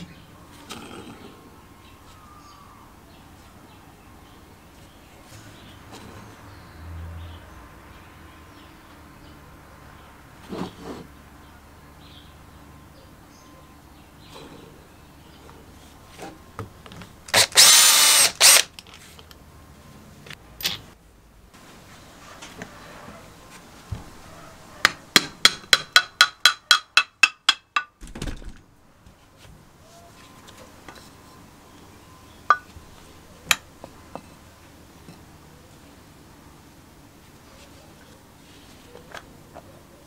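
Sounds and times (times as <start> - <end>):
cordless drill-driver spinning: 17.3 - 18.7
hammer striking metal: 25.2 - 28.0, 32.5 - 32.7.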